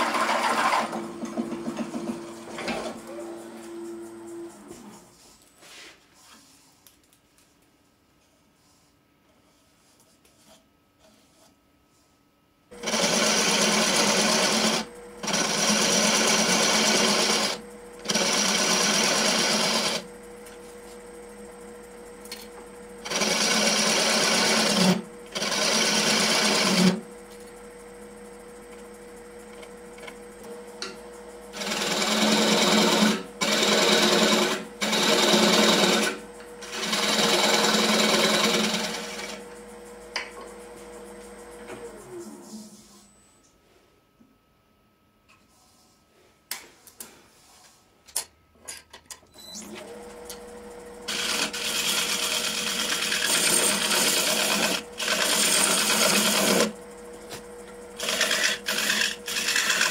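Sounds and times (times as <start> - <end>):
turning tool cutting wood: 0.0 - 4.9, 12.8 - 20.1, 23.0 - 27.1, 30.8 - 39.5, 51.0 - 59.9
wood lathe humming: 0.0 - 5.0, 12.8 - 42.0, 49.7 - 59.9.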